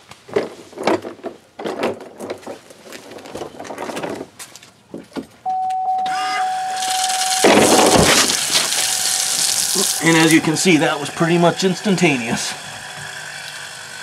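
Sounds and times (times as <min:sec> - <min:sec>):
fuel pump whine and hiss: 0:05.5 - 0:14.0.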